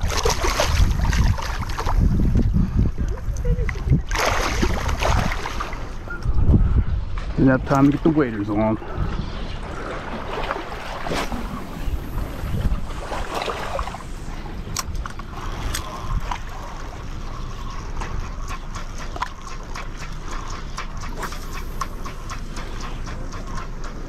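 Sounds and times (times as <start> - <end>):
wind on the microphone: 0.0 - 16.7
fishing reel ticking: 14.7 - 24.0.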